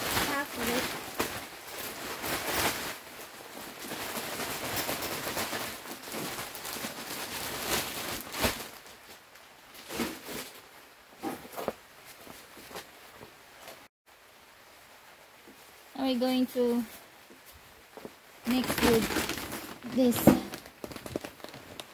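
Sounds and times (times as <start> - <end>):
plastic bag rustling: 0.0 - 13.8, 16.8 - 21.9.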